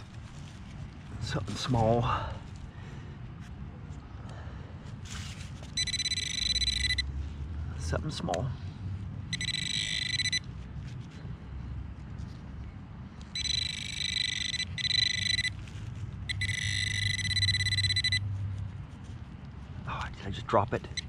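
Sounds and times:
metal detector warbling tone: 5.8 - 7.0, 9.4 - 10.4, 13.4 - 15.5, 16.3 - 18.2.

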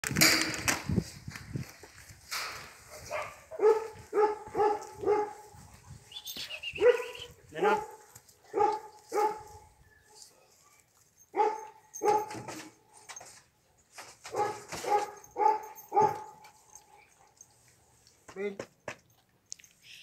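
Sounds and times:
dog barking: 2.9 - 5.6, 6.8 - 9.6, 11.3 - 12.5, 14.3 - 16.4.

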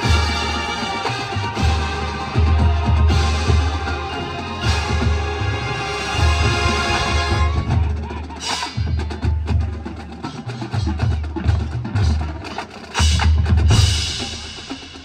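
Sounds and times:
held horn chord: 0.0 - 7.8.

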